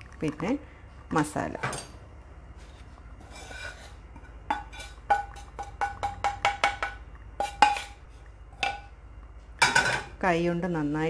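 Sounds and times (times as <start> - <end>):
metal pan tapping on steel bowl: 4.5 - 7.9.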